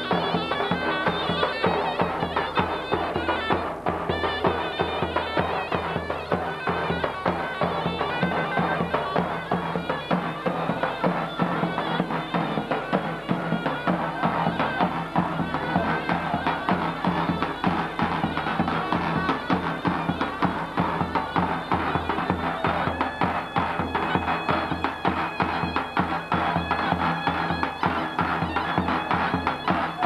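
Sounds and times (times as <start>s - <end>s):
shrill reed wind instrument melody: 0.0s - 30.0s.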